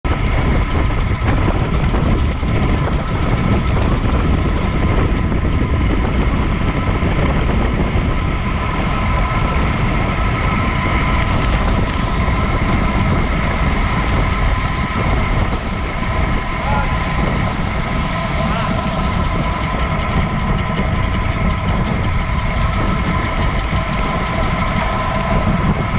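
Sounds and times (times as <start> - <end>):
wind rushing over microphone: 0.0 - 25.9
bike tyres rolling on asphalt: 0.1 - 25.9.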